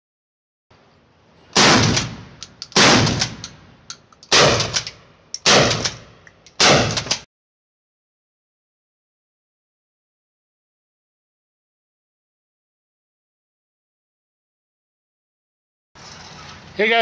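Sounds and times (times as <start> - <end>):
shotgun pump clacks: 2.4 - 7.2.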